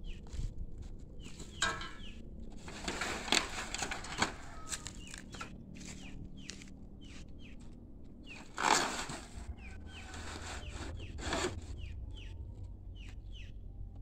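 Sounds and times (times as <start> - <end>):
rustle: 1.2 - 6.6, 8.2 - 11.5
chicken clucking: 1.4 - 7.6
small bird chirping: 4.5 - 8.5, 9.5 - 13.8.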